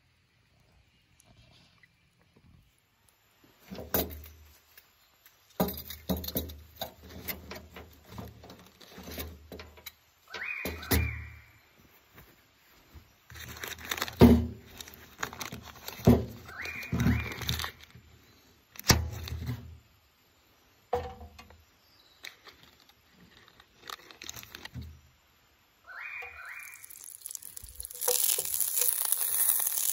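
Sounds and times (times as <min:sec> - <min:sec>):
paper wrapper crinkling and tearing: 0:13.4 - 0:16.4, 0:17.2 - 0:17.9, 0:22.4 - 0:24.8, 0:26.5 - 0:29.9.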